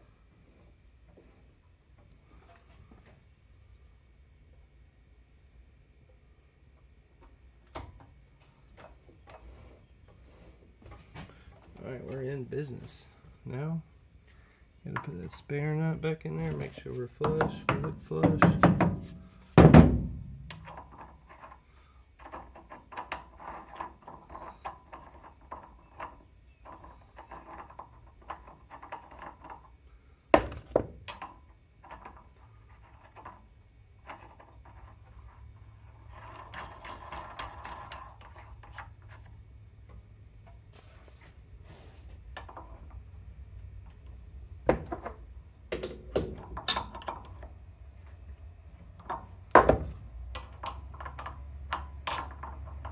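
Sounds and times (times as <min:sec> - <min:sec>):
low steady hum: 0:00.0 - 0:52.9
sharp metal knocks: 0:17.2 - 0:20.7
spanner knocking and clinking: 0:30.4 - 0:32.3, 0:44.8 - 0:47.6, 0:48.9 - 0:52.9.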